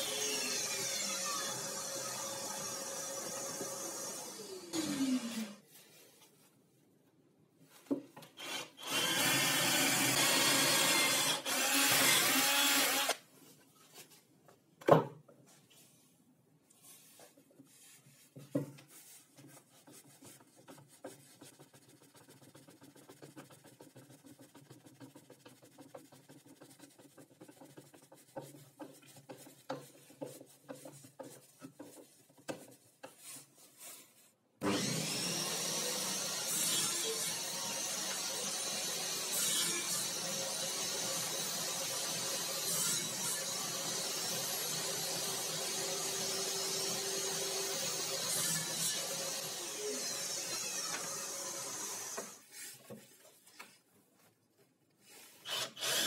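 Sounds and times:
electric drill boring into wood: 8.4 - 13.2, 34.6 - 52.4, 55.5 - 56.0.

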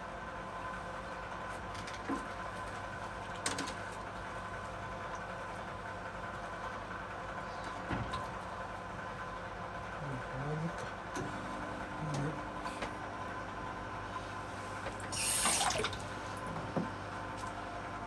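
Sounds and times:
steady hum: 4.2 - 18.0.

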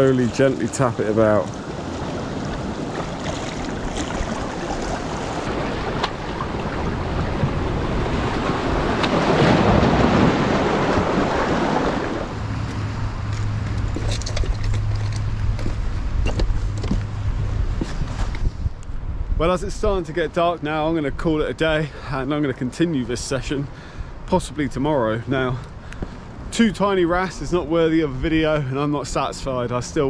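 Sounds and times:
surf washing against rocks: 0.0 - 12.4
wind buffeting microphone: 0.0 - 21.8.

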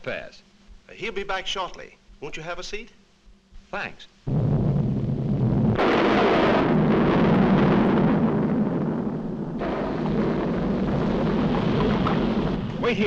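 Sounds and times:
cartoon volcano eruption rumble: 4.3 - 13.0.

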